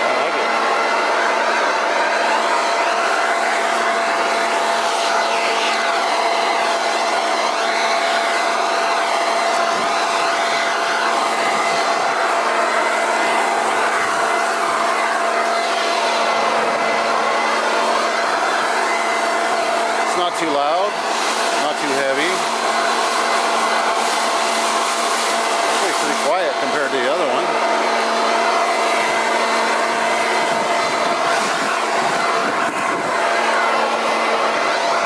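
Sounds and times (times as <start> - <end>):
leaf blower running: 0.0 - 35.0.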